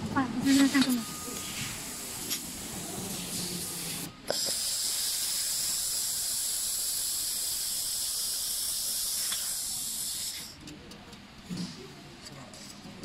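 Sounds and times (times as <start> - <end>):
laser welder hissing: 0.4 - 10.6.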